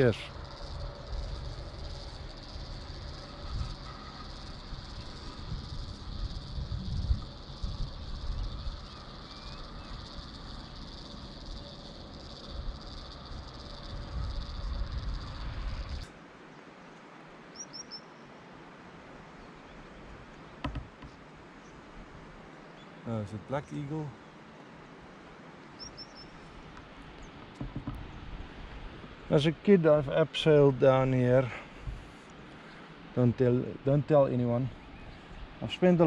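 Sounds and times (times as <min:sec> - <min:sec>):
wind buffeting microphone: 0:00.0 - 0:16.1, 0:31.7 - 0:32.2
insects chirring: 0:00.0 - 0:36.0.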